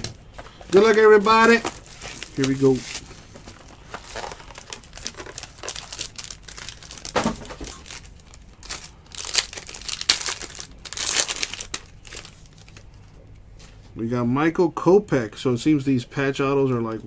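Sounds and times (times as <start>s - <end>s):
card pack wrapper crinkling: 0.4s - 13.0s.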